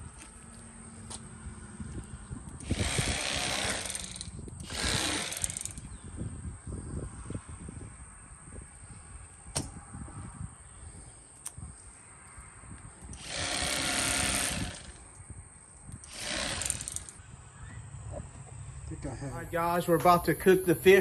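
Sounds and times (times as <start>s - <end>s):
electric fillet knife running: 13.2s - 14.9s.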